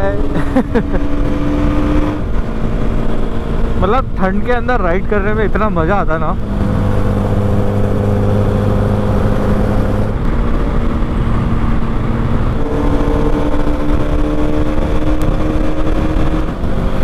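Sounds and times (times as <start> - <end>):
motorcycle engine running: 0.0 - 17.0
wind noise on microphone: 6.4 - 17.0.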